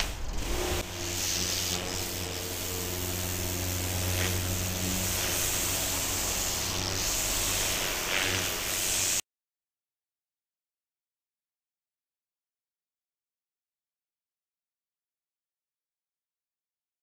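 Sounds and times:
pressure washer motor hum: 0.0 - 9.2
water jet hissing: 0.0 - 9.2.

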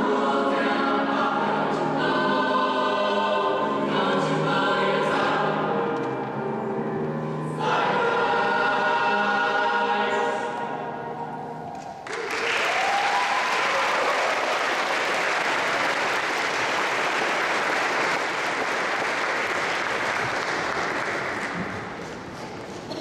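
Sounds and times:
choir singing: 0.0 - 12.0
crowd cheering: 12.0 - 21.4
audience applause: 12.0 - 22.0.

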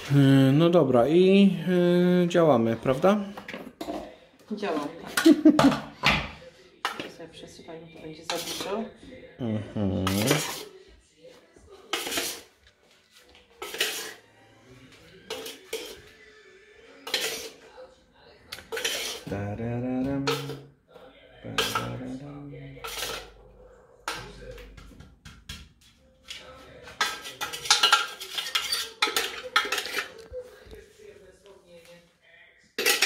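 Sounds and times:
dishes and spoons clinking: 2.9 - 7.2, 8.0 - 8.9, 9.8 - 10.8, 11.8 - 12.6, 13.2 - 14.2, 15.1 - 16.2, 17.0 - 17.8, 18.5 - 19.4, 20.0 - 20.7, 21.4 - 23.4, 24.0 - 30.5, 32.8 - 33.0.

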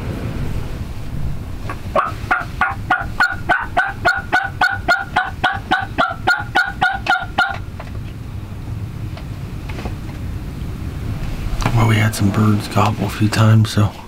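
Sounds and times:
turkey yelps: 2.0 - 7.6.

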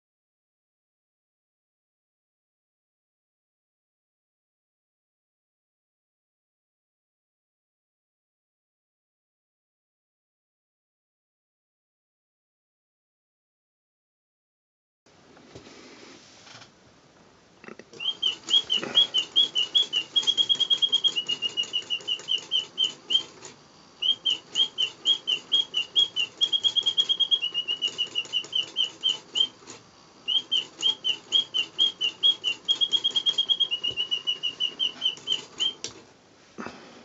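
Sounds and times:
mechanical bird whistling birdsong: 18.0 - 36.0.

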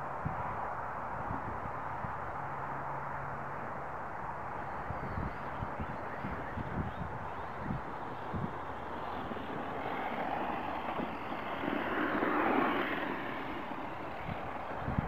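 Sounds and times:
rc truck motor whirring on dirt: 4.6 - 15.0.

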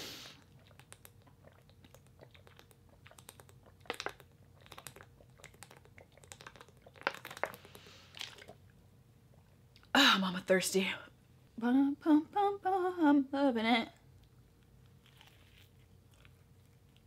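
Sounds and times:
person swallowing and gulping: 0.4 - 8.6.

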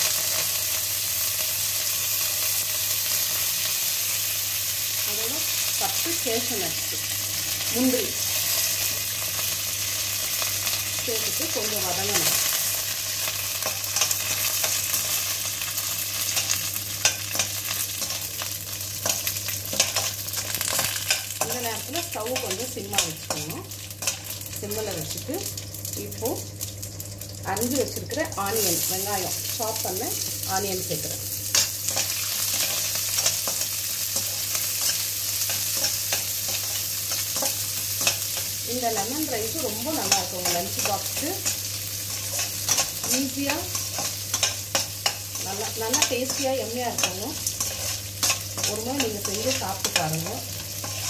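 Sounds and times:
food sizzling in hot oil: 0.0 - 51.0
spatula scraping a pan: 40.0 - 51.0
metal spatula scraping a pan: 50.7 - 51.0.

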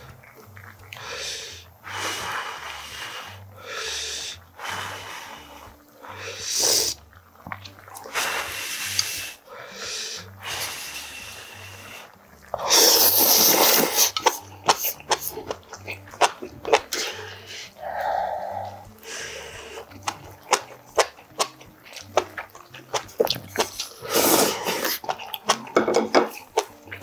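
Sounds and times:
man blowing on food: 0.9 - 7.1, 8.0 - 15.3, 23.7 - 25.1
loud noodle slurp: 7.9 - 9.4, 10.3 - 26.8.

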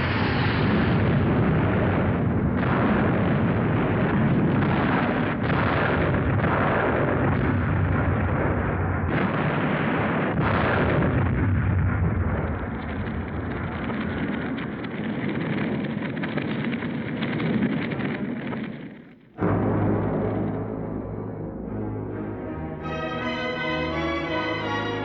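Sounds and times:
anti-aircraft gunfire: 0.0 - 22.1
explosions: 0.0 - 25.0.

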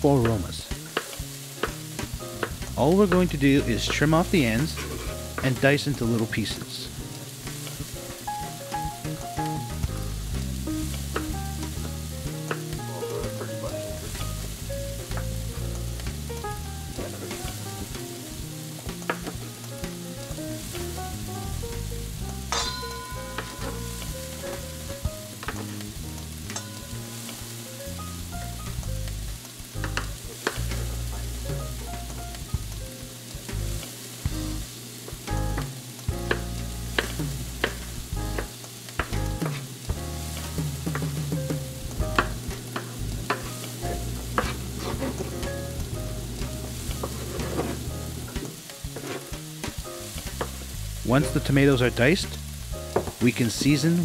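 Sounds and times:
background music with bass line: 0.0 - 54.0
frying sizzle: 0.0 - 54.0
knife chopping on cutting board: 44.3 - 45.5.

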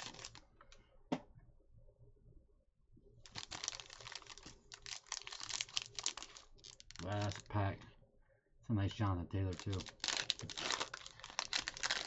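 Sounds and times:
foil wrapper crinkling: 0.0 - 0.4, 3.3 - 7.5, 9.5 - 12.0.

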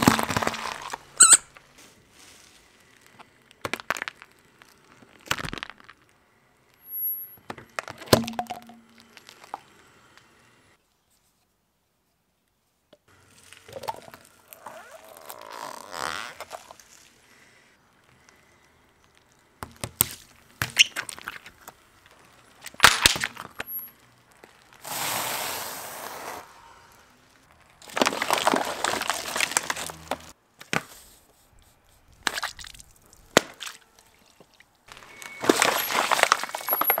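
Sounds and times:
bottles cracking and crunching: 0.0 - 1.7, 2.8 - 6.2, 7.6 - 9.7, 13.2 - 17.1, 19.0 - 24.8, 27.4 - 30.3, 32.1 - 37.0
crackling and spraying: 13.1 - 30.4
steady hiss: 23.6 - 27.5.

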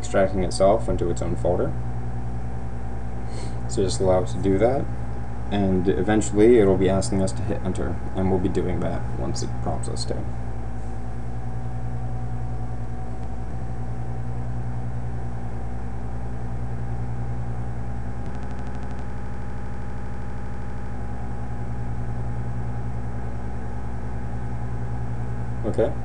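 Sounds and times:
low mechanical hum: 0.0 - 26.0
buzzy noise: 3.1 - 15.6, 16.2 - 22.9.

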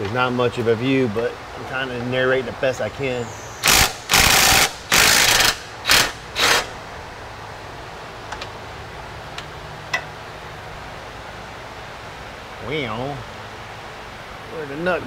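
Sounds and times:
electric ratchet spinning: 3.6 - 6.8.

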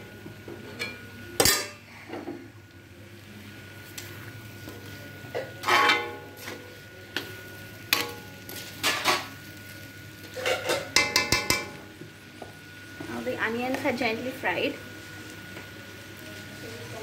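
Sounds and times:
spoon scraping and clanking in wok: 5.6 - 6.2, 10.3 - 11.8.

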